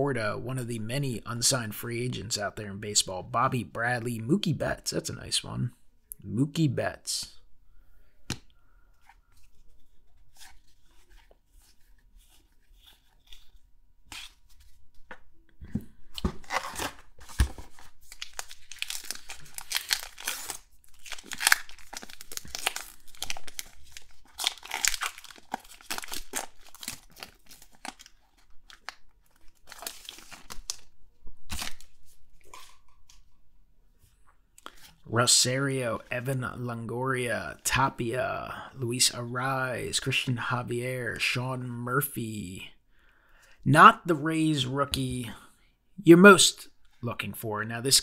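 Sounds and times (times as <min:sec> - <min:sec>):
cards being handled: 0:08.3 - 0:30.9
wrapper crinkling and tearing: 0:16.3 - 0:32.9.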